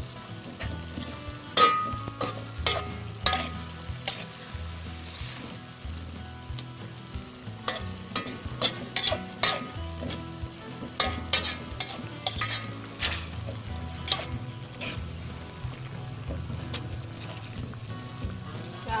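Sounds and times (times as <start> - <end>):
pan sizzling: 0.0 - 19.0
metal spatula scraping a wok: 0.4 - 5.8, 7.4 - 15.4.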